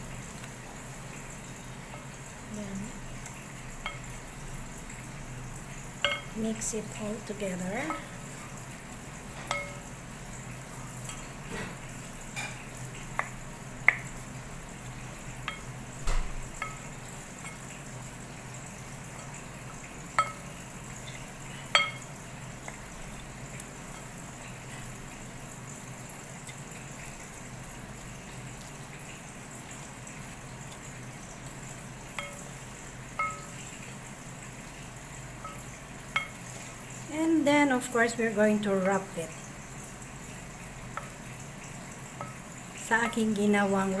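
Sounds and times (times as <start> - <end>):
spoon knocking glass bowl: 6.0 - 6.3, 9.5 - 9.8, 20.2 - 20.4, 21.7 - 22.1, 32.2 - 32.4, 33.2 - 33.6.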